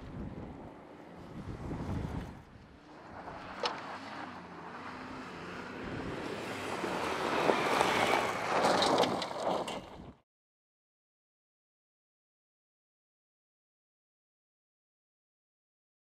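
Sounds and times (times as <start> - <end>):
gravel crackling: 0.0 - 10.2.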